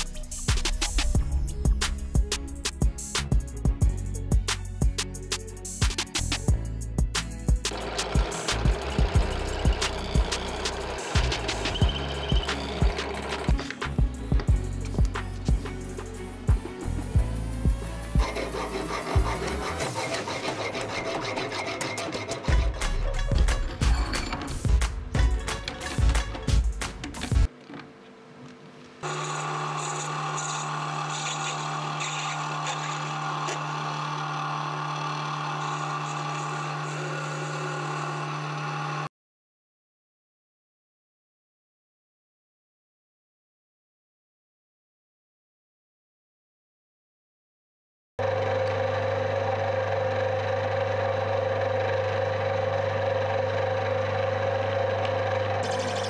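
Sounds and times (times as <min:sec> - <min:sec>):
metal lathe humming: 0:07.7 - 0:13.7, 0:17.3 - 0:23.2, 0:29.0 - 0:39.1, 0:48.2 - 0:56.0
hiss of cutting: 0:17.2 - 0:20.8.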